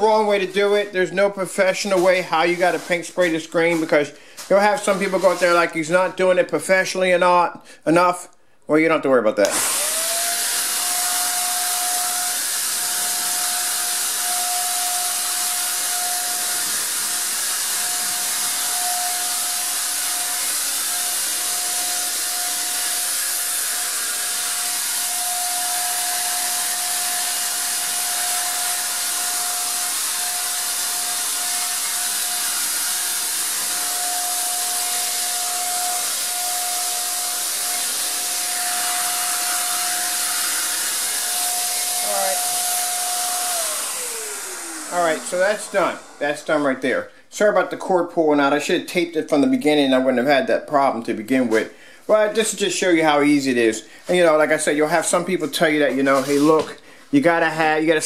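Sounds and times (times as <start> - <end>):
hiss of air and paint: 1.6 - 5.7, 14.9 - 46.4, 56.0 - 56.6
paint sprayer motor whine: 9.4 - 46.8.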